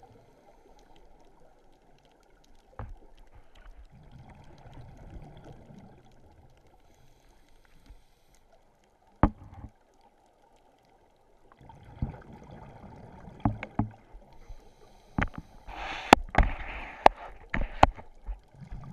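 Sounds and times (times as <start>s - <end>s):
sharp underwater clicks: 15.1s - 18.4s.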